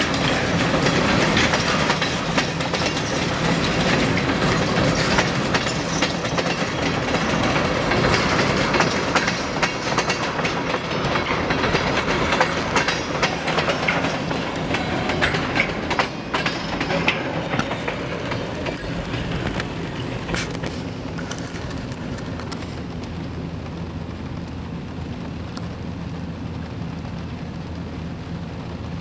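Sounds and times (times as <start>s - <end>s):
freight train wheels clattering: 0.0s - 23.2s.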